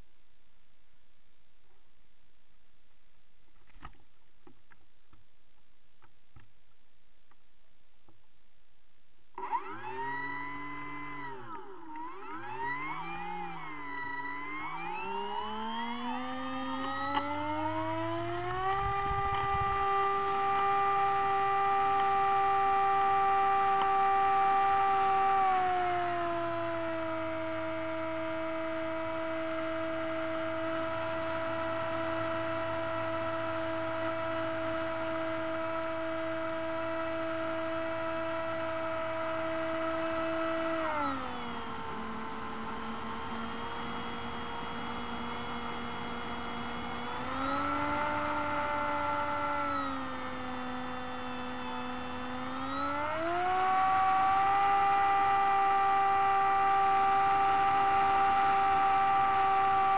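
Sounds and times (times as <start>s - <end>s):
model plane motor whining: 9.4s - 59.9s.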